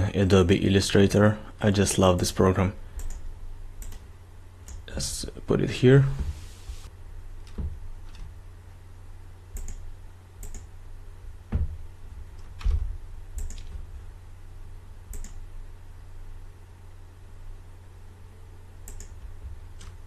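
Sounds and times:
low steady hum: 0:00.0 - 0:20.0
computer mouse clicks: 0:03.0 - 0:03.2, 0:03.8 - 0:04.0, 0:09.6 - 0:09.8, 0:10.4 - 0:10.7, 0:13.4 - 0:13.8, 0:15.1 - 0:15.4, 0:18.8 - 0:19.2
dull thumps: 0:11.5 - 0:13.0.

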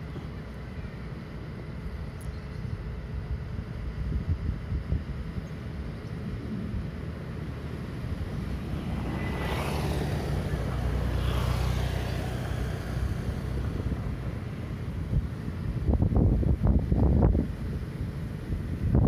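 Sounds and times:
distant vehicle rumble: 0:05.6 - 0:19.0.

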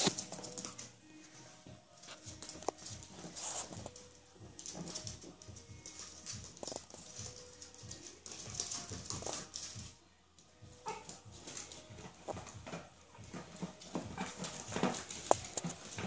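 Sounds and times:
small paws scuffling on mat: 0:00.0 - 0:16.0
puppies whimpering and yipping: 0:10.7 - 0:12.0.

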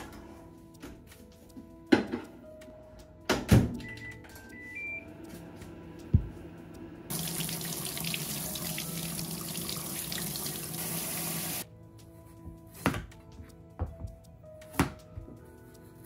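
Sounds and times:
faucet spraying water: 0:07.1 - 0:11.6.

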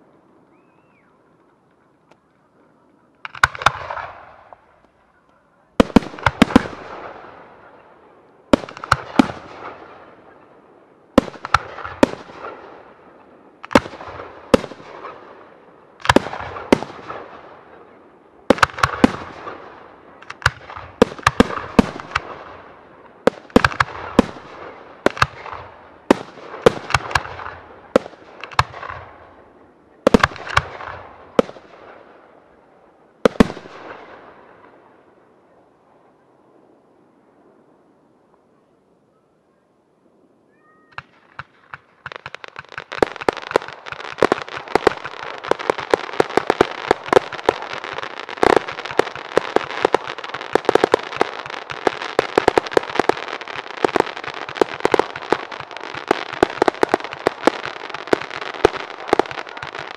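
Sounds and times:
firework shells bursting: 0:03.2 - 0:04.7, 0:41.0 - 0:59.9.

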